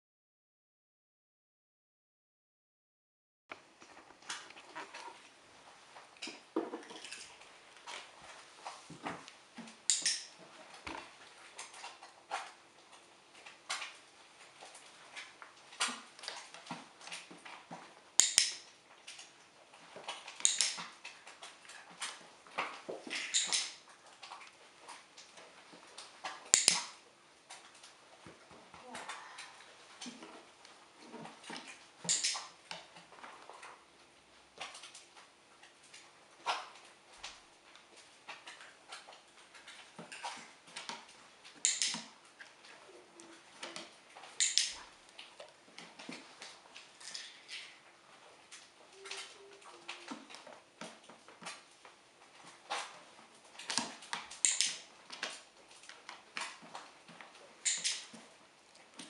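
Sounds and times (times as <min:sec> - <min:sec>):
sharp clicks and light taps: 0:09.2 - 0:11.0, 0:14.8 - 0:19.3, 0:20.0 - 0:24.6, 0:25.2 - 0:28.0, 0:31.5 - 0:32.9, 0:36.5 - 0:42.5, 0:43.2 - 0:46.5, 0:53.6 - 0:58.2
training clicker clicks: 0:09.9 - 0:10.4, 0:18.2 - 0:19.3, 0:20.3 - 0:21.0, 0:23.1 - 0:23.8, 0:26.5 - 0:27.0, 0:32.0 - 0:32.5, 0:41.6 - 0:42.1, 0:43.6 - 0:44.8, 0:53.7 - 0:55.2, 0:57.6 - 0:58.1.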